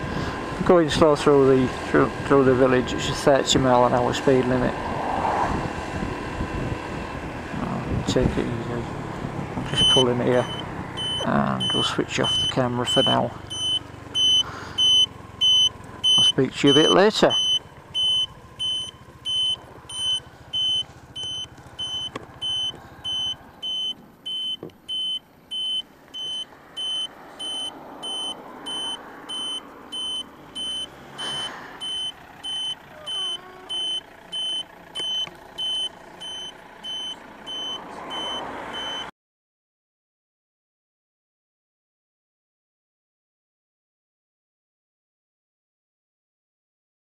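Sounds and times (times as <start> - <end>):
car engine: 0.0 - 39.1
scooter engine and road noise: 0.0 - 39.1
scooter indicator beeping: 9.8 - 39.1.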